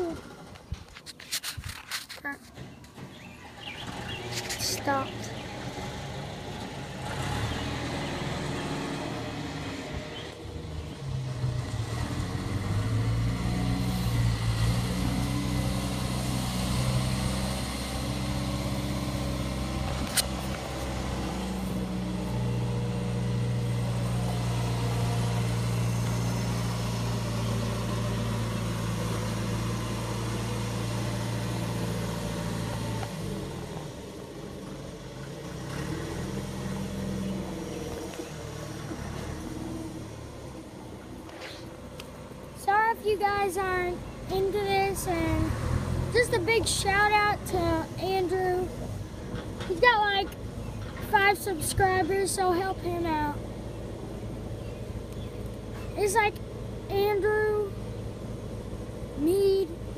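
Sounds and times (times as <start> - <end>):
diesel engines running: 0.0 - 59.9.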